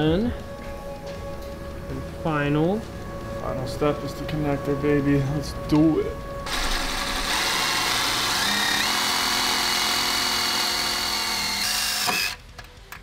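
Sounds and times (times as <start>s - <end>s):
rotary tool whining: 6.4s - 12.4s.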